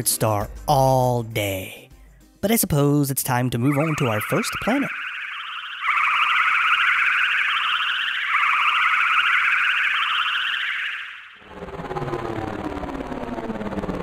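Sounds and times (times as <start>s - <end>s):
warbling electronic tone: 3.6s - 14.0s.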